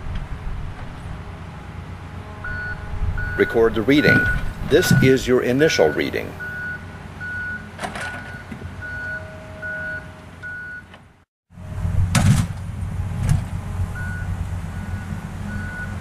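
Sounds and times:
engine rumble: 0:00.0 - 0:16.0
reversing alarm beeping: 0:02.3 - 0:10.9, 0:13.9 - 0:16.0.

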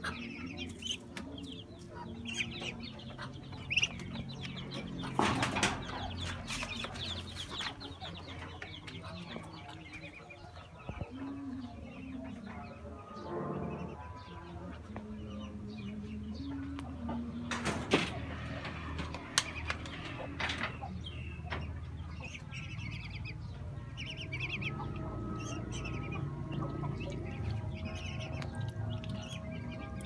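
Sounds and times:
high chirping poultry calls: 0:00.0 - 0:30.0.

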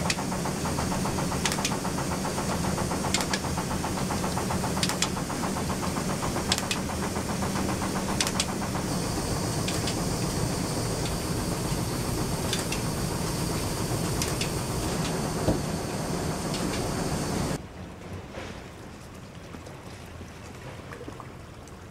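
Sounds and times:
sharp clicks: 0:00.0 - 0:17.1
fine rapid rattle: 0:00.0 - 0:17.6
mill machinery rumble and hum: 0:00.0 - 0:17.6.

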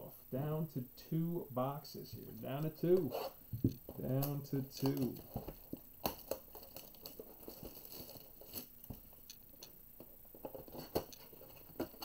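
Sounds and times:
plastic wrap crinkling: 0:04.1 - 0:09.4.

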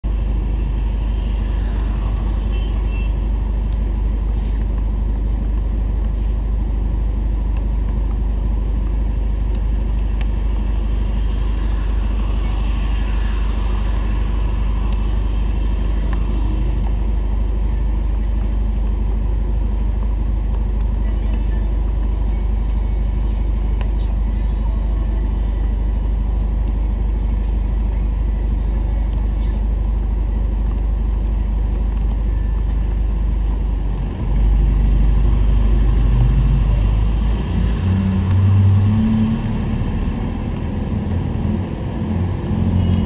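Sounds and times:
car tyres hissing on wet road: 0:00.6 - 0:03.1, 0:10.8 - 0:16.4.

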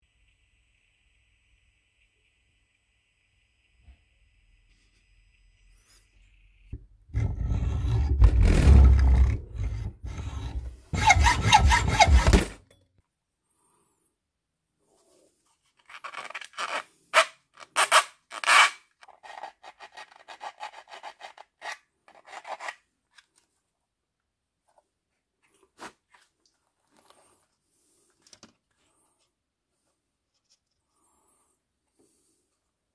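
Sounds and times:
hand tool scraping metal shaft: 0:07.2 - 0:12.6.

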